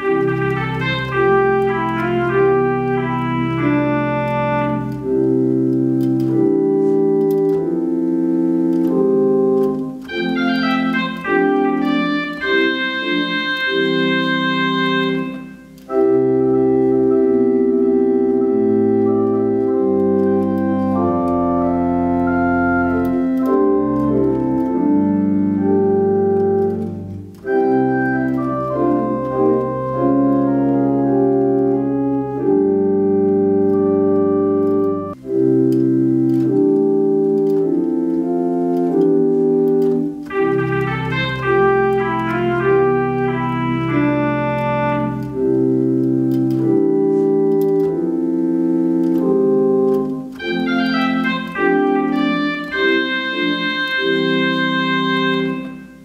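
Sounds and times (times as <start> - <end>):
organ playing slow chords: 0.0 - 56.0.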